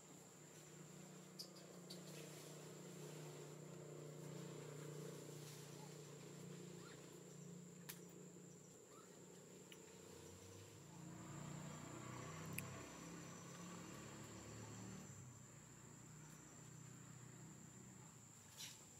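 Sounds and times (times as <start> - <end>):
low background hum: 0.0 - 18.9
high-pitched insect trill: 4.9 - 18.0
faint clicks: 12.5 - 12.8.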